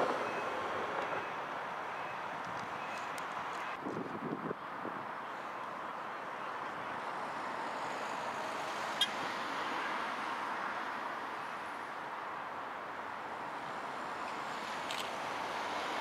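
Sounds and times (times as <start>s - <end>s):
tram rolling on rails: 0.0s - 3.7s
passing cars: 0.0s - 16.0s.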